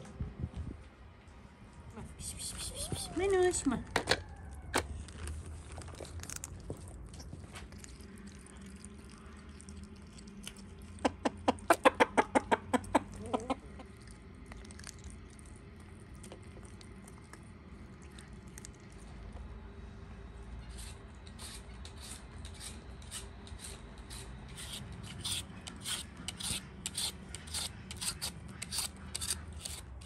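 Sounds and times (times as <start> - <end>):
hen clucking: 11.0 - 14.0.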